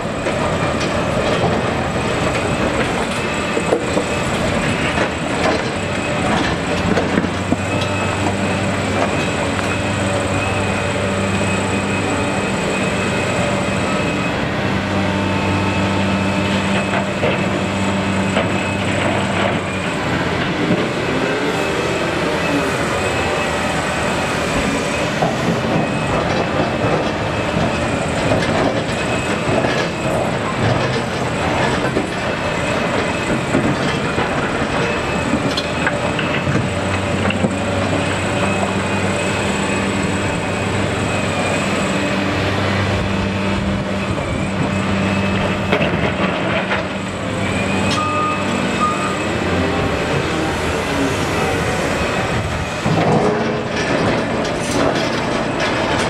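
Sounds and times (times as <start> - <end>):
excavator diesel engine under load: 0.0 - 56.0
hydraulics whining: 0.0 - 56.0.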